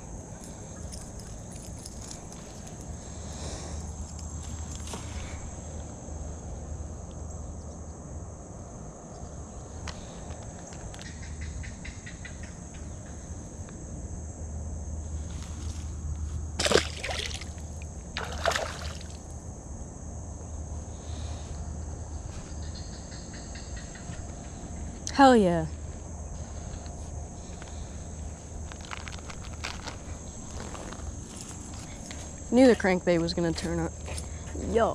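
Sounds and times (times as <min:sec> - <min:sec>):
high insect drone: 0:00.0 - 0:34.9
water sloshing and splashing: 0:16.5 - 0:19.3
short loud splashes: 0:16.6 - 0:17.6, 0:18.2 - 0:19.2.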